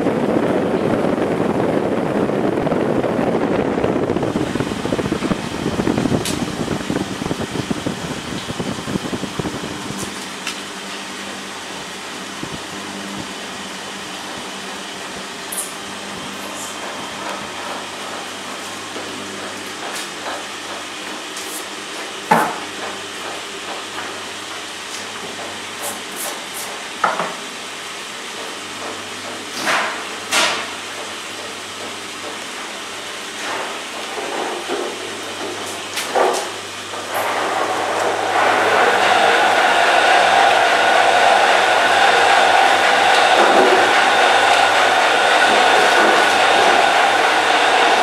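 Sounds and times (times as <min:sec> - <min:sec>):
honey extractor humming: 0:30.8 - 0:48.0.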